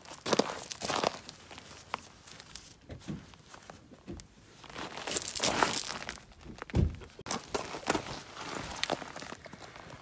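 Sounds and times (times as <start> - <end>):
gravel crunching underfoot: 0.0 - 10.0
dull thump: 6.4 - 7.1.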